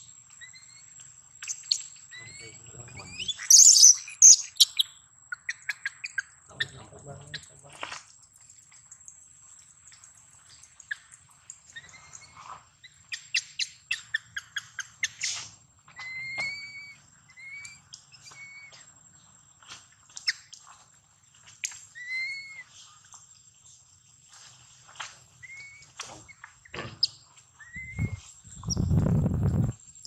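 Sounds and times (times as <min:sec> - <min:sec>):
baby monkey coo calls: 0:01.4 - 0:07.5, 0:11.7 - 0:18.9, 0:21.9 - 0:22.8, 0:25.4 - 0:29.7.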